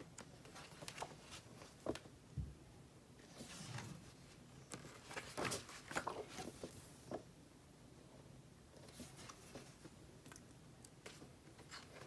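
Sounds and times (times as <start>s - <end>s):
magazine pages turning: 0.4s - 2.0s, 4.7s - 6.8s.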